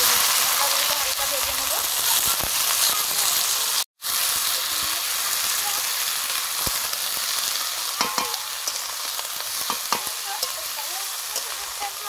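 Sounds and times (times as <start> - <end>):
vegetables sizzling in hot oil: 0.0 - 12.0
metal spatula stirring: 6.7 - 12.0
spatula clinking against pan: 8.0 - 8.9, 9.6 - 11.7.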